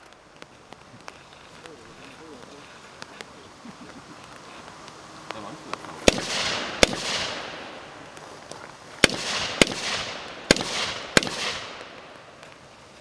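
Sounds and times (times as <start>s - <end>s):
rifle shots with echo: 6.0s - 7.9s, 9.0s - 12.1s.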